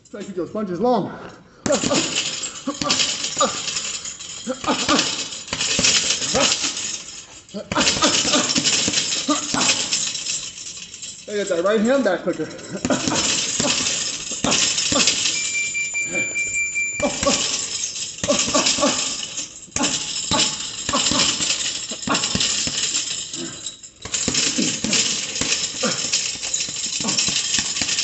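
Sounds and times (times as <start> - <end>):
gloves punching a bag: 1.6 - 3.8, 4.5 - 6.8, 7.6 - 10.1, 12.8 - 15.3, 18.2 - 28.0.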